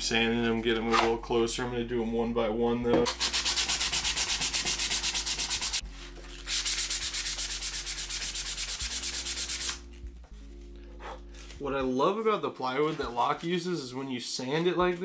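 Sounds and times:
hand sanding wood with sandpaper: 3.1s - 5.8s, 6.4s - 9.8s.

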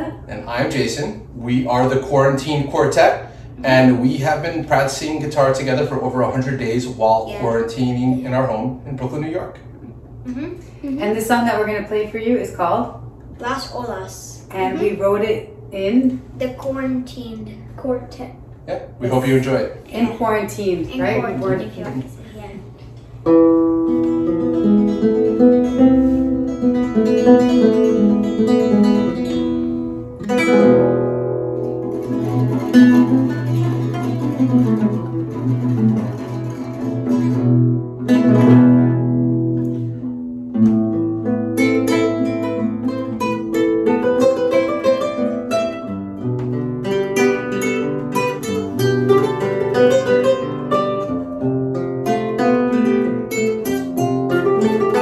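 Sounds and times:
classical guitars playing: 3.6s - 8.5s, 20.9s - 22.0s, 23.2s - 55.0s.

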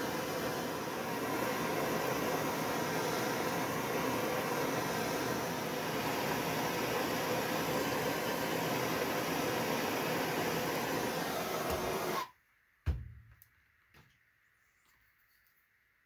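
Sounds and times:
propane torch hissing: 0.0s - 12.4s.

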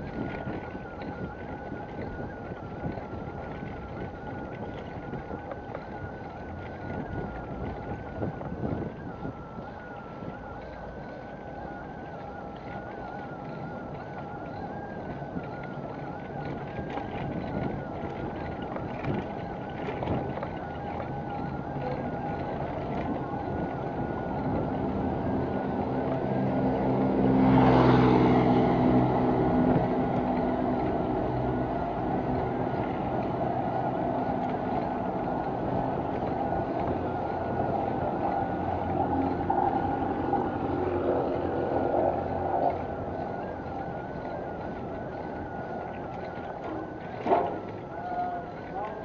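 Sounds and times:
wind and road noise: 0.0s - 49.0s
motor engine passing: 11.0s - 49.0s.

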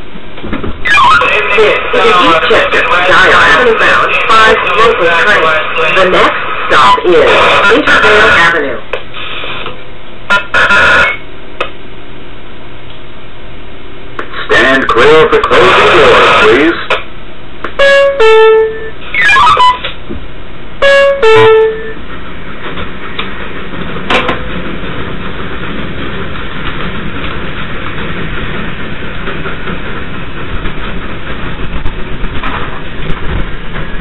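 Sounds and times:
train running on track: 0.0s - 34.0s
train horn two-note toots: 17.8s - 19.8s, 20.8s - 22.0s
knock: 24.1s - 24.5s.

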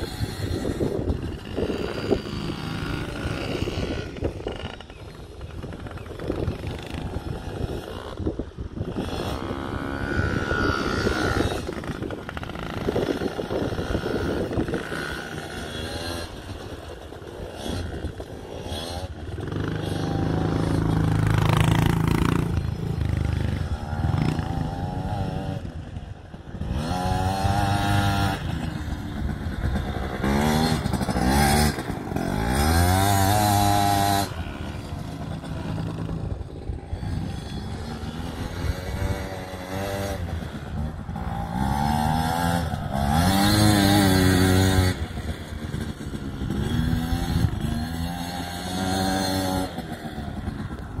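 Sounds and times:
quad engine revving: 0.0s - 51.0s.

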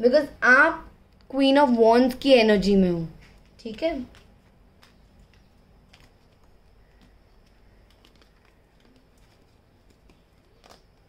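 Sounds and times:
cards clicking and tapping: 3.2s - 11.0s.

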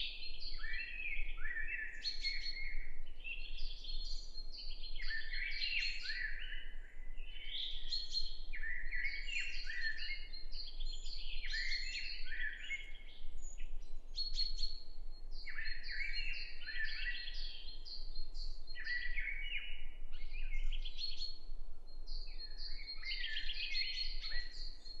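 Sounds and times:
songbirds singing: 0.0s - 25.0s.

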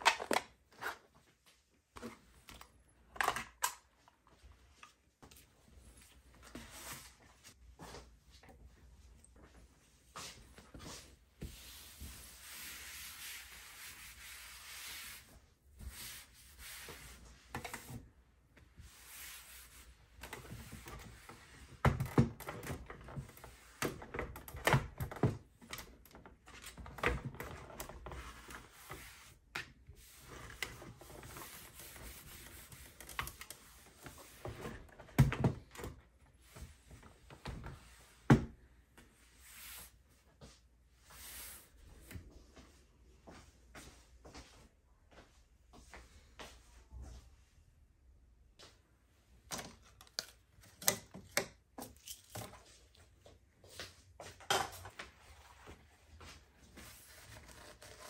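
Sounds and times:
cloth rubbing on desktop: 10.8s - 17.4s.

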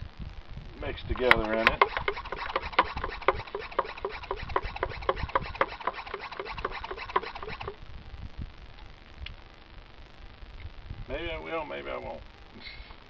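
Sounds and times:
hand sprayer sputtering squeaky chirps: 1.7s - 7.8s.

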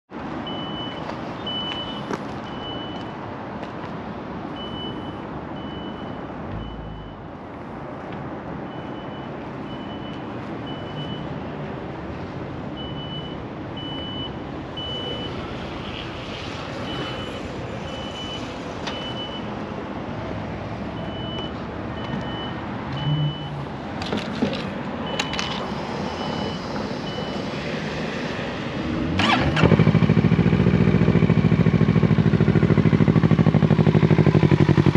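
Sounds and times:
street traffic: 0.1s - 34.9s
high electronic beeps: 4.6s - 7.3s
motorcycle engine starting: 29.1s - 34.9s.

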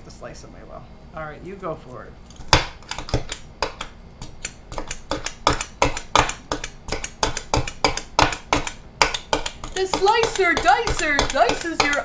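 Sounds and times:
food chopper clacking: 2.9s - 12.0s.

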